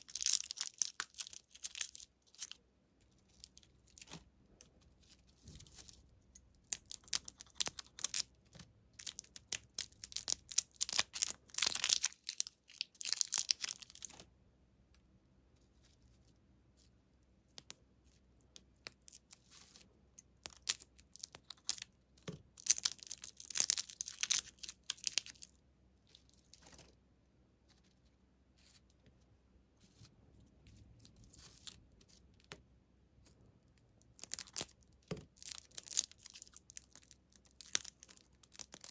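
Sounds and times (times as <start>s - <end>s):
plastic wrappers crinkling: 0.0s - 2.6s, 5.2s - 8.3s, 9.0s - 14.2s, 22.5s - 25.5s, 34.1s - 38.9s.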